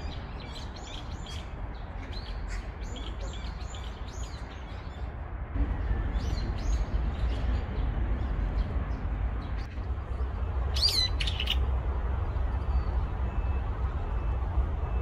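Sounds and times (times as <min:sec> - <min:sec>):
birds chirping: 0:00.0 - 0:15.0
bird sweeping call: 0:10.7 - 0:11.6.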